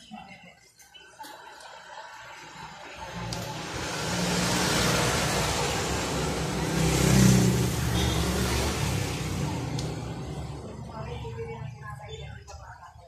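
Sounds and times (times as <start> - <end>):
vehicle engine running: 3.0 - 11.8.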